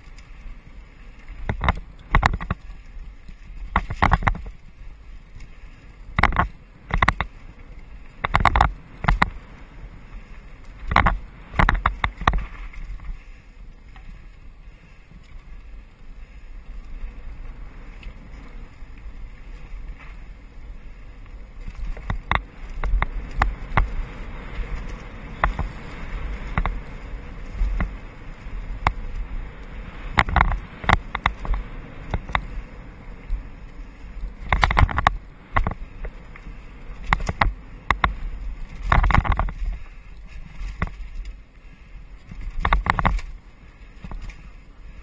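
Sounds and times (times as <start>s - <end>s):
wind and tyres rumbling: 0.0s - 45.0s
bike clacking and rattling: 1.3s - 2.8s, 3.6s - 4.7s, 6.1s - 9.5s, 10.4s - 13.2s, 21.3s - 32.7s, 34.2s - 41.4s, 42.2s - 43.4s.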